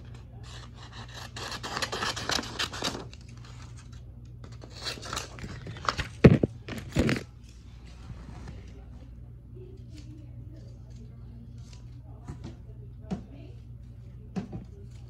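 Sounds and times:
paper rustling and tearing: 0:00.4 - 0:08.6.

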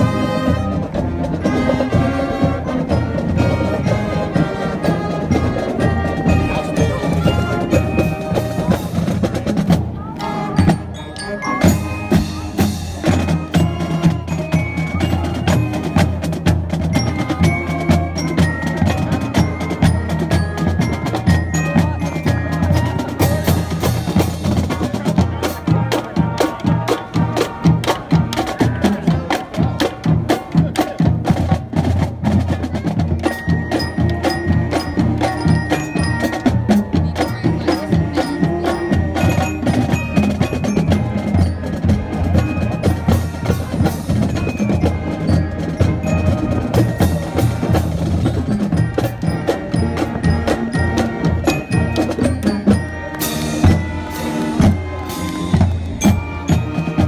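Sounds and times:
brass horns and saxophones: 0:00.0 - 0:57.0
snare and bass drums: 0:11.6 - 0:57.0.

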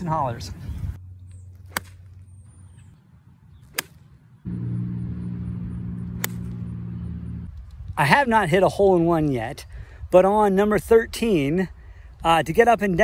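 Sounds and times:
golf club striking ball: 0:03.8 - 0:07.0
low engine hum: 0:04.4 - 0:07.8.

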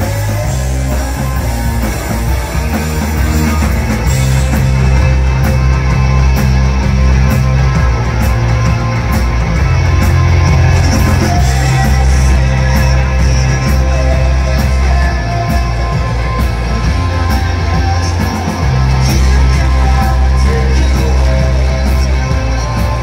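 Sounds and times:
man singing: 0:00.0 - 0:04.8, 0:10.6 - 0:23.0
drum and cymbal hits: 0:00.0 - 0:23.0
live rock band playing: 0:00.0 - 0:23.0.

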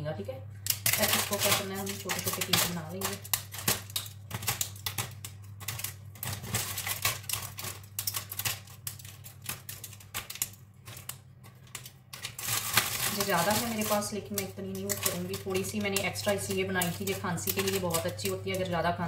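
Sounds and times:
sugar snapping cracks: 0:00.6 - 0:18.7.

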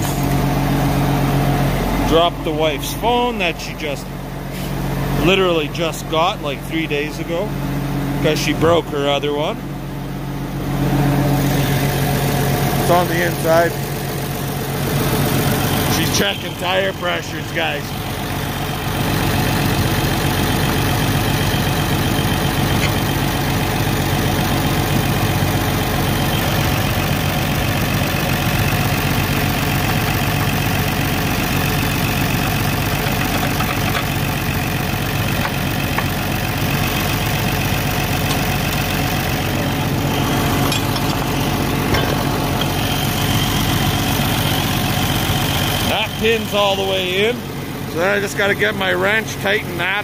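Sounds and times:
tractor engine idling: 0:00.0 - 0:50.0.

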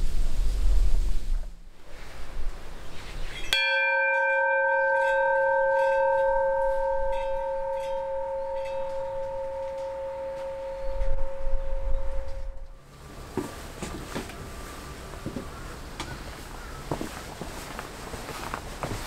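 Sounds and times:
low wind rumble: 0:00.0 - 0:03.6, 0:06.0 - 0:13.8
bell ringing: 0:03.5 - 0:12.8.

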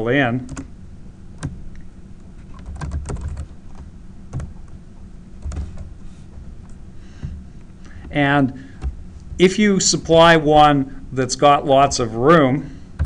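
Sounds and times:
computer keyboard typing: 0:02.5 - 0:04.7, 0:05.4 - 0:05.9.

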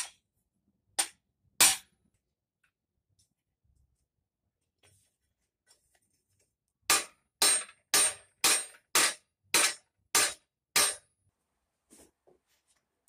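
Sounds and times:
hammer striking sheet steel: 0:01.0 - 0:01.9, 0:06.9 - 0:11.1.

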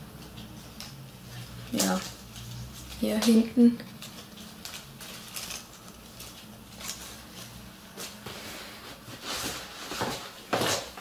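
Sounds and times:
soft brushing sounds: 0:06.0 - 0:10.5.

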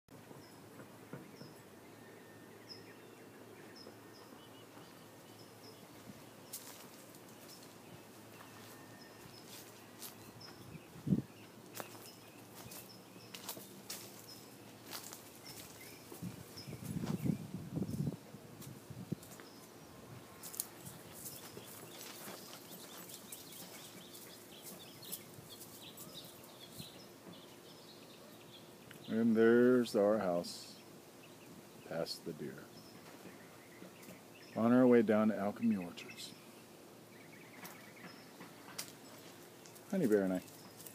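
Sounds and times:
faint steady hiss: 0:00.2 - 0:40.9
small bird chirping: 0:00.3 - 0:18.2, 0:19.1 - 0:29.3.

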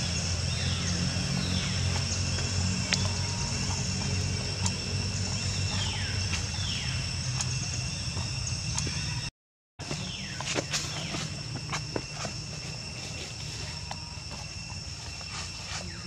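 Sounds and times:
low hum: 0:00.0 - 0:09.3
high insect drone: 0:00.0 - 0:16.0.

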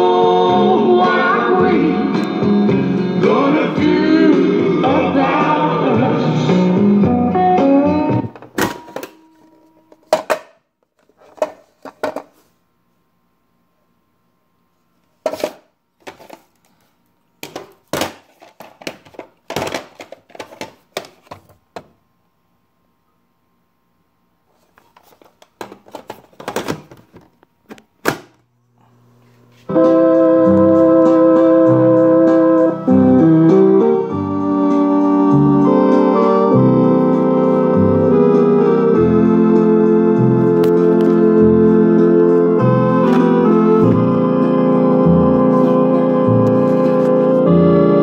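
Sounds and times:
organ music from speaker: 0:00.0 - 0:10.4, 0:29.5 - 0:48.0
faint hum: 0:08.3 - 0:33.2
tape cartridge scraping and rattling: 0:17.4 - 0:21.4, 0:25.0 - 0:27.3.

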